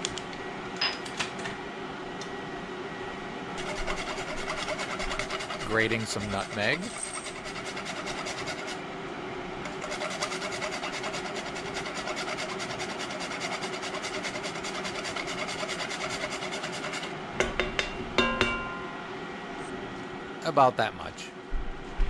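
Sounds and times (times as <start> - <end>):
nutmeg scraping on grater: 3.6 - 8.8, 9.7 - 17.1.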